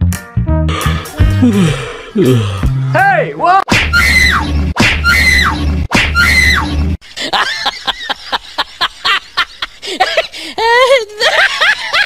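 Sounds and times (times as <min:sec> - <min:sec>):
short sharp yelping cries: 0:05.0 - 0:06.7.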